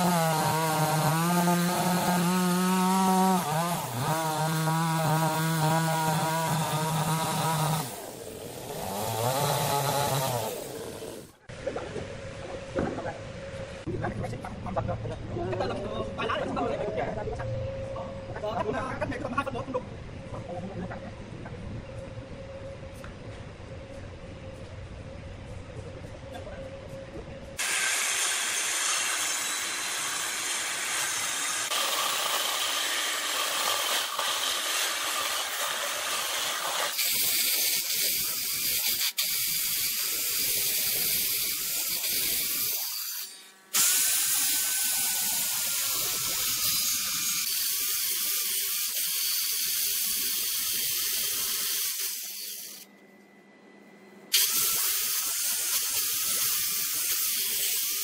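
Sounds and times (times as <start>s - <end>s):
circular saw cutting wood: 0.0s - 11.4s, 27.6s - 52.9s, 54.3s - 58.0s.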